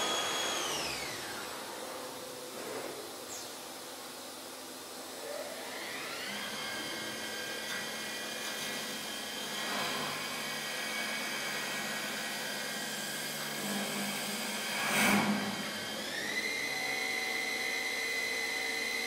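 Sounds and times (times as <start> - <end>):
hiss of wood cutting: 0.0 - 2.0
lathe motor whine: 0.0 - 19.0.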